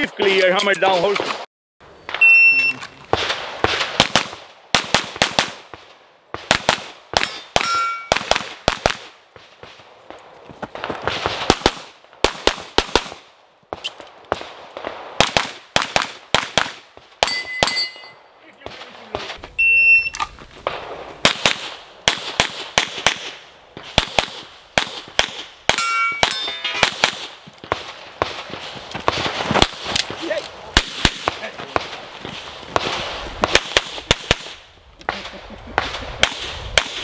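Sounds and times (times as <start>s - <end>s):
electronic beep: 2.2s - 2.8s, 19.6s - 20.2s
pistol shots: 3.1s - 17.8s, 20.6s - 37.0s
metal targets ringing: 7.2s - 8.2s, 17.2s - 18.3s, 25.7s - 27.0s.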